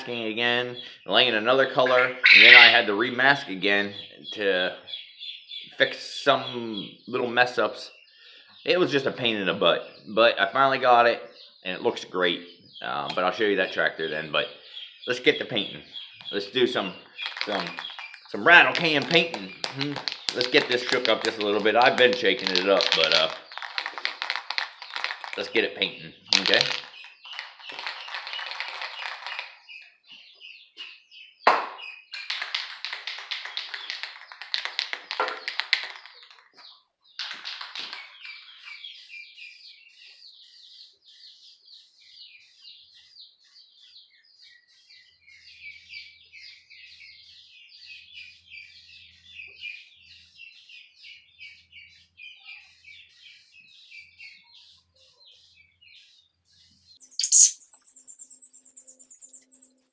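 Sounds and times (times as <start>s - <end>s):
birds twittering: 0.0s - 59.9s
spray can ball rattling: 17.2s - 25.7s, 26.3s - 29.6s, 32.2s - 36.5s, 57.0s - 59.9s.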